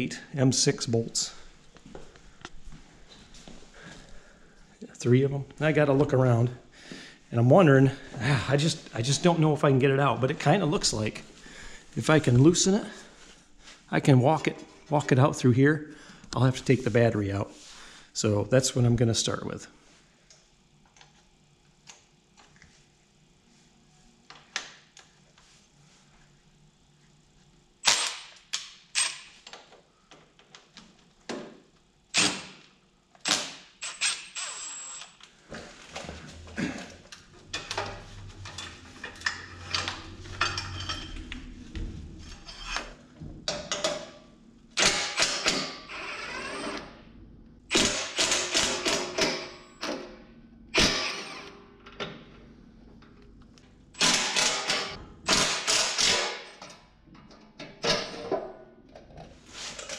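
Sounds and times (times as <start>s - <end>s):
hand tools clinking and scraping: 35.5s - 43.0s
cordless drill bursts: 44.8s - 46.9s, 50.8s - 51.5s.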